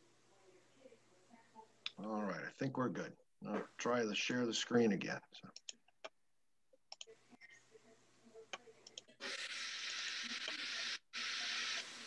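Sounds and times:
faint clicks: 6.9 - 7.1, 8.5 - 9.2
steady hiss of noise: 7.2 - 12.0.

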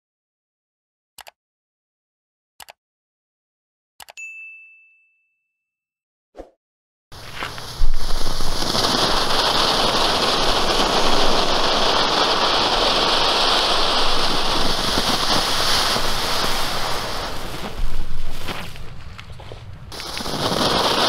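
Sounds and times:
firework fountain hissing: 7.2 - 21.0.

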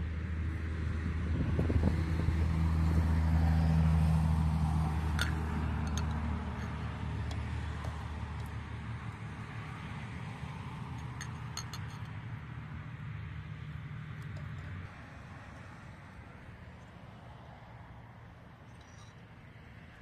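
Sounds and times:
vehicle engine humming: 0.0 - 20.0
light metal clinks: 5.2 - 7.4, 11.0 - 12.2, 18.6 - 19.3.

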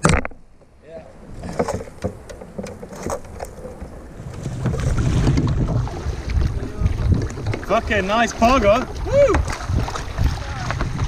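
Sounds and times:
knocks and clicks on kayak: 0.0 - 0.7, 1.3 - 7.9
wind rumble on microphone: 3.6 - 11.0.

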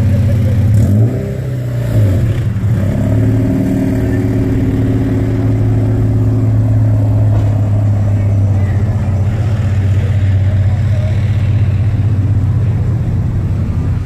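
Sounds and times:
car engine running: 0.0 - 14.0.

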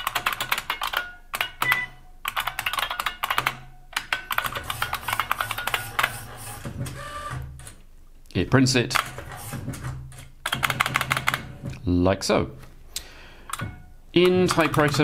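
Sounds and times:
clicky typewriter keystrokes: 13.5 - 15.0.

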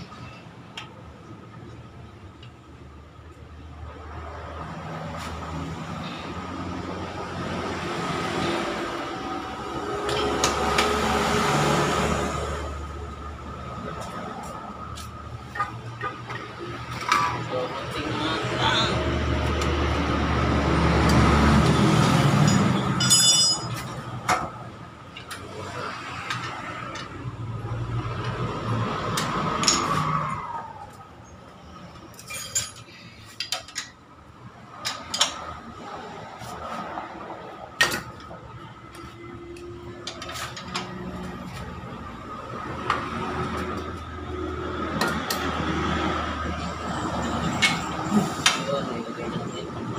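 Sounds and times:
metal tools clinking: 22.4 - 23.9, 32.1 - 33.9
bright metallic ring: 22.5 - 23.8.

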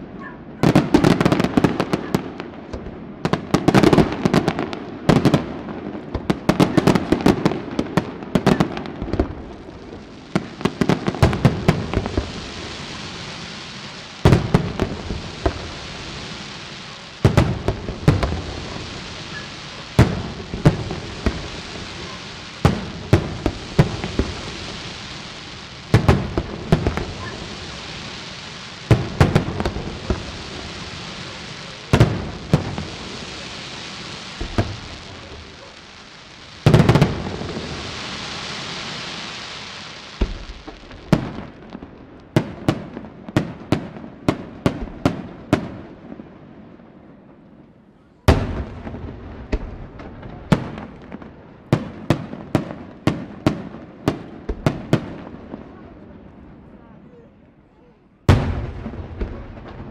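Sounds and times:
steady hiss: 8.8 - 42.3
firework shells bursting: 10.4 - 39.2.

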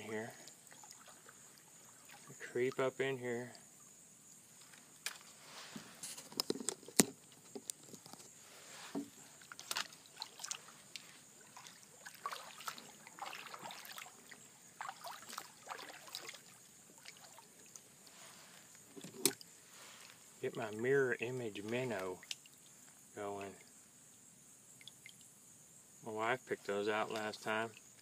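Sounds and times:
water trickling and dripping: 0.0 - 5.3, 9.1 - 25.4
knocks and scrapes on hull: 5.6 - 9.2.

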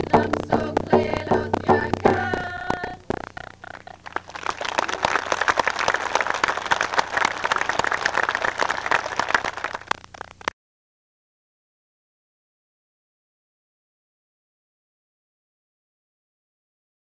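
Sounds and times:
crowd applauding: 2.1 - 10.5.

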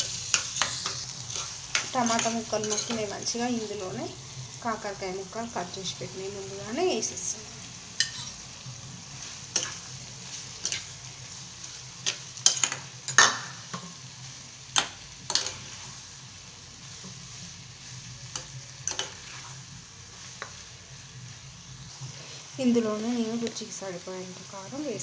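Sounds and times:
metal spatula scraping pan: 0.0 - 3.1, 8.0 - 8.4
vegetables sizzling in oil: 0.0 - 25.0.

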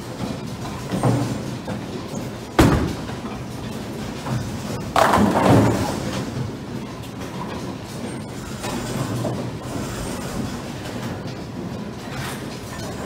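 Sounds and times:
bowling pins clattering: 0.2 - 9.7
bowling alley rumbling: 0.2 - 13.0
bowling ball crashing into pins: 4.9 - 6.2.

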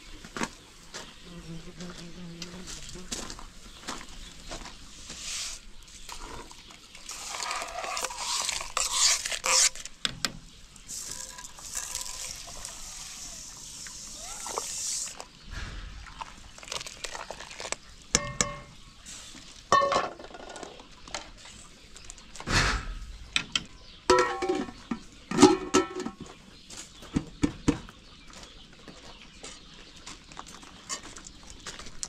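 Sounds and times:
dishes and pots clinking: 18.1 - 18.8, 19.7 - 20.7, 24.1 - 26.3.

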